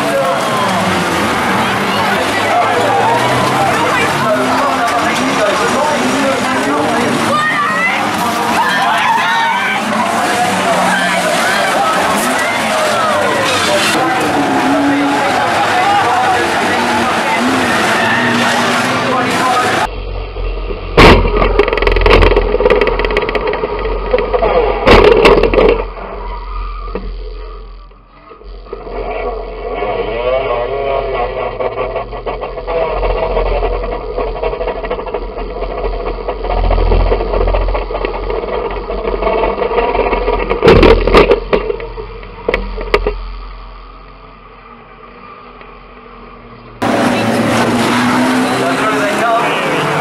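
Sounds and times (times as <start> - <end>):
racing car engine at full throttle: 0.0 - 50.0
metal crashing impacts: 20.8 - 26.0.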